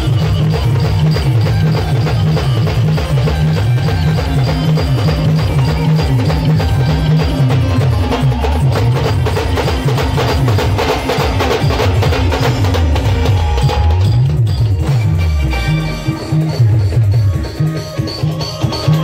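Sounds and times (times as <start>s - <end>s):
fast drum and percussion hits: 0.0s - 19.0s
heavy bass line: 11.9s - 18.1s.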